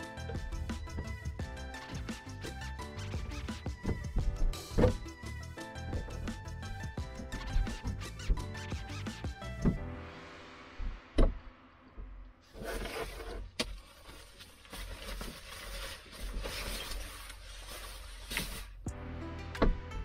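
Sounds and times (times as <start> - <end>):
rubbing and scraping: 0.0 - 9.8, 12.4 - 18.8
background music: 0.0 - 13.3, 18.8 - 20.0.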